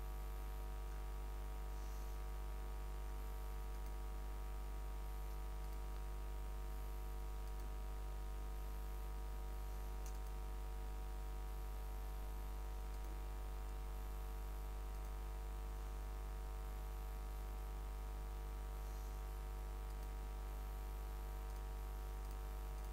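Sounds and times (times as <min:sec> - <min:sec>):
low electrical hum: 0:00.0 - 0:22.9
faint mouse clicks: 0:03.6 - 0:04.0, 0:05.2 - 0:06.2, 0:07.2 - 0:07.8, 0:09.9 - 0:10.5, 0:12.7 - 0:13.3, 0:14.8 - 0:15.2, 0:19.8 - 0:20.3, 0:21.4 - 0:22.9.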